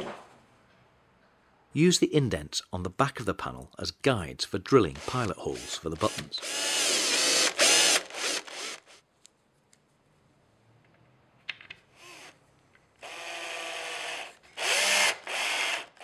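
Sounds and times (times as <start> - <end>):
power drill running: 5.0 - 9.0, 13.0 - 16.0.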